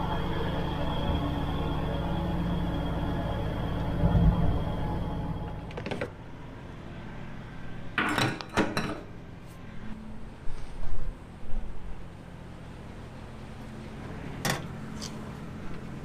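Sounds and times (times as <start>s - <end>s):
diesel engine idling: 0.0s - 7.9s, 11.2s - 16.0s.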